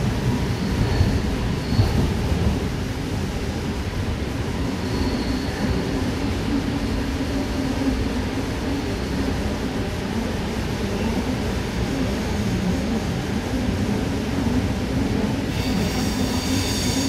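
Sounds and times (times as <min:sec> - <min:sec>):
train running rumble: 0:00.0 - 0:17.0.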